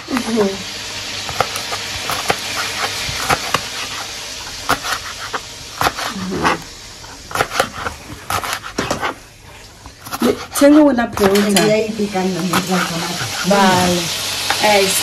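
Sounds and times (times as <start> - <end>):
chicken sizzling in a pan: 0.0 - 15.0
knife chopping on cutting board: 1.3 - 6.7, 7.3 - 9.2, 10.0 - 14.0.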